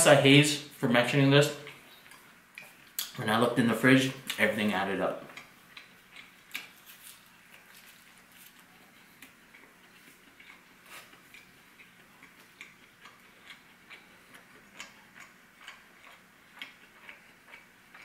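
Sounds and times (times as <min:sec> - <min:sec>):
crunchy chewing of bread: 0:05.3 - 0:18.0.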